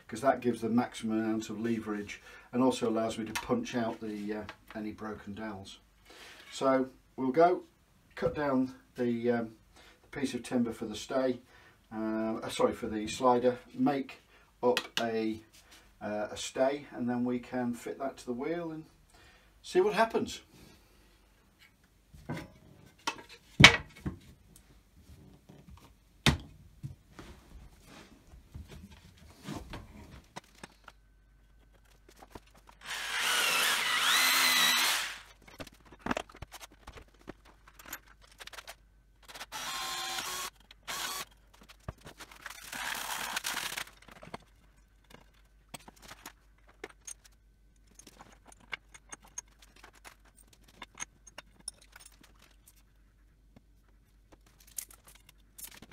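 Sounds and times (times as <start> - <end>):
jigsaw cutting wood: 32.8 - 35.3, 39.3 - 41.3, 42.5 - 43.9.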